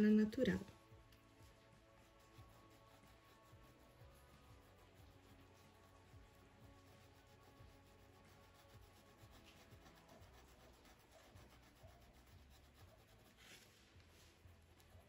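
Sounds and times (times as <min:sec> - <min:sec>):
paintbrush rubbing on cloth: 0:00.6 - 0:15.0.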